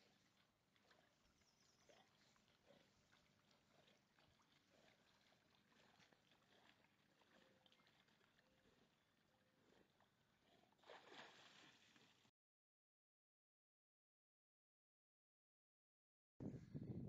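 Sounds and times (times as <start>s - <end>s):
water lapping: 0.0s - 12.3s
small splashes: 10.7s - 12.3s.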